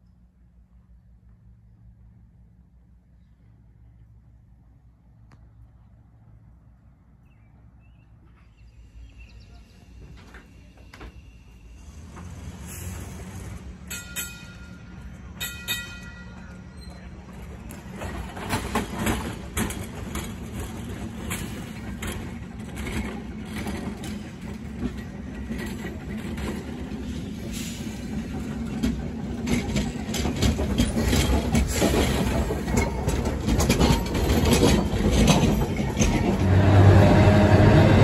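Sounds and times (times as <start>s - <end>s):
streetcar wheels clicking on track: 9.8s - 38.0s.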